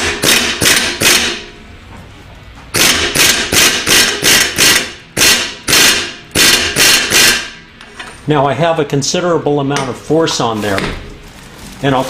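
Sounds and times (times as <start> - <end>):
air impact wrench bursts: 0.0 - 1.5, 2.7 - 7.7.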